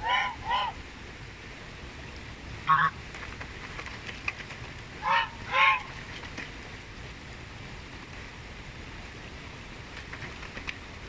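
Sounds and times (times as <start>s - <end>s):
goose honking: 0.0s - 0.8s, 2.7s - 3.0s, 5.0s - 5.9s.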